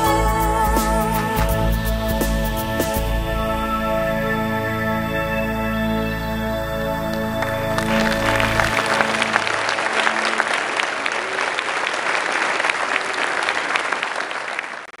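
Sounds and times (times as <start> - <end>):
held music chord: 0.0 - 11.6
audience applauding: 7.1 - 15.0.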